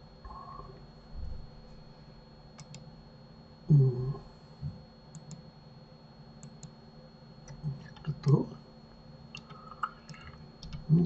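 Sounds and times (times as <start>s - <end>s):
computer mouse clicks: 2.6s - 2.8s, 5.1s - 5.4s, 6.4s - 6.8s, 9.3s - 10.9s.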